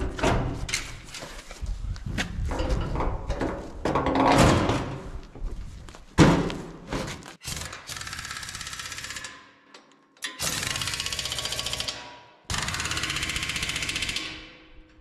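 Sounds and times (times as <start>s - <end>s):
pneumatic impact wrench rattling: 10.2s - 14.6s.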